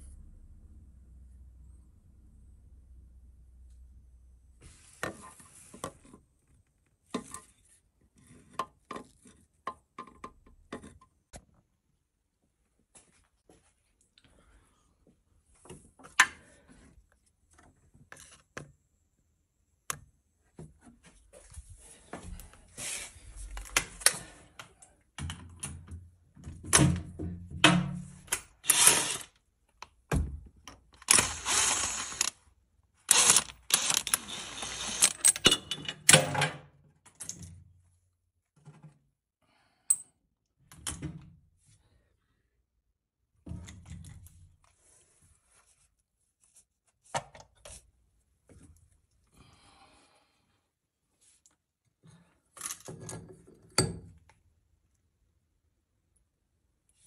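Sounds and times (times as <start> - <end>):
rapid clicking rattling and scraping: 31.0 - 32.3, 33.1 - 35.5.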